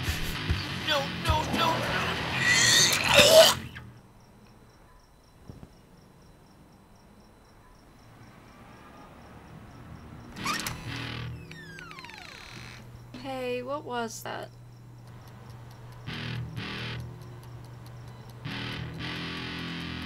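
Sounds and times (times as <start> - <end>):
loud shrill scream: 1.6 - 3.8.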